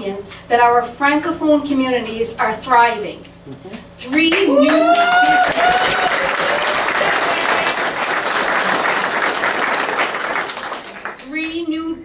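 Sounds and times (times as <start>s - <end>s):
audience applauding: 4.6s - 11.2s.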